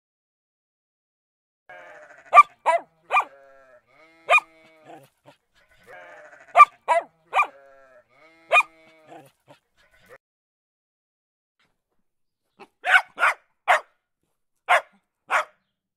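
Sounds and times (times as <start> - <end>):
dog barking: 2.2 - 3.5, 4.2 - 10.2, 12.6 - 14.0, 14.7 - 15.6.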